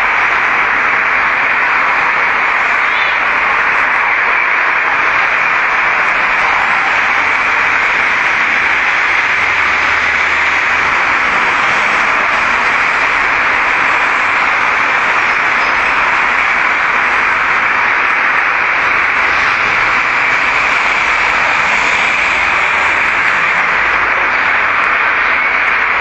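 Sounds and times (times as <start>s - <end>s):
loud steady hiss: 0.0s - 26.0s.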